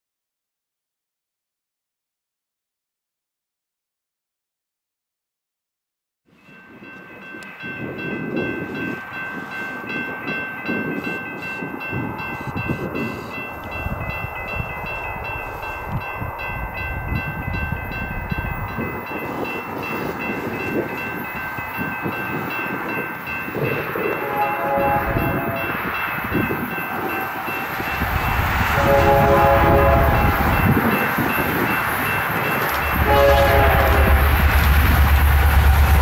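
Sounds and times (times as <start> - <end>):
distant freight train rumbling: 6.5 - 36.0
high-pitched multi-tone ringing: 7.2 - 34.8.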